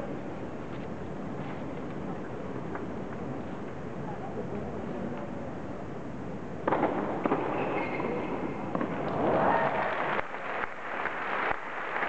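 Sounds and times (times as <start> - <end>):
crowd applauding: 9.1 - 12.0.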